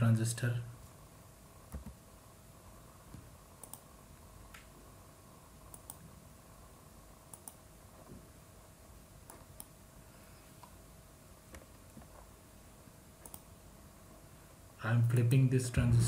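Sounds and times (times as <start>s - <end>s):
low steady hum: 0.0s - 16.0s
computer mouse clicks: 3.1s - 3.9s, 5.7s - 6.0s, 7.3s - 7.6s, 9.2s - 9.8s, 13.2s - 13.5s.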